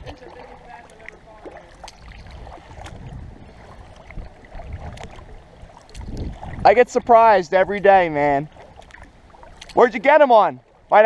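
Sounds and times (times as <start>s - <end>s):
small clicks and splashes: 0.0s - 3.2s, 3.8s - 6.6s, 7.7s - 10.0s
paddle dipping and dripping in water: 0.0s - 11.0s
low rumble: 2.1s - 8.4s.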